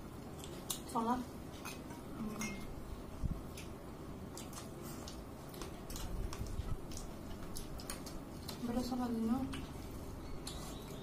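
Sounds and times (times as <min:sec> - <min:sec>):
chewing clicks and smacks: 0:00.4 - 0:01.0, 0:03.5 - 0:08.7, 0:09.5 - 0:11.0.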